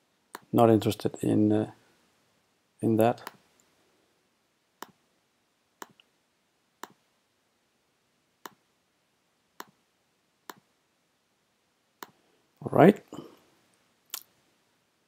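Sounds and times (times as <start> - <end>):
computer mouse clicks: 6.8 - 7.0, 9.6 - 9.8, 12.0 - 12.2.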